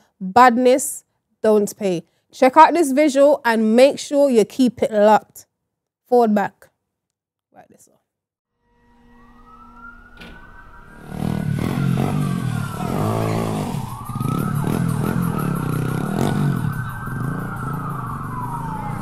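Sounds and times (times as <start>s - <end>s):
siren wailing: 8.6s - 19.0s.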